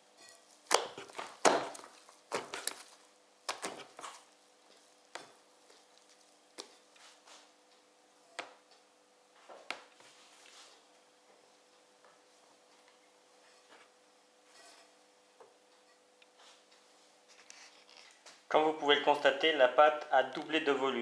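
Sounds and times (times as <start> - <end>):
dough slapped on board: 0.7 - 2.8, 3.5 - 3.8.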